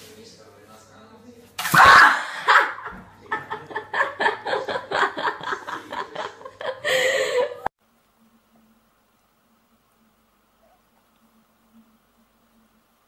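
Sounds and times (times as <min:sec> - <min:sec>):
person laughing in rhythmic bursts: 0:02.3 - 0:07.7.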